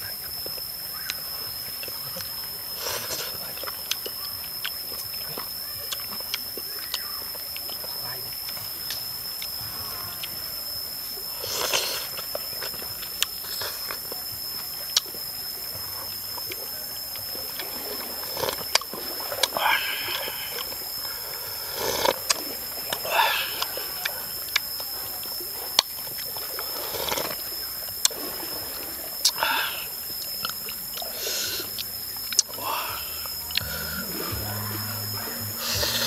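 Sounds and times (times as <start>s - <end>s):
soup slurping: 1.8s - 8.6s, 11.2s - 15.2s, 17.2s - 36.0s
steady high tone: 31.7s - 36.0s.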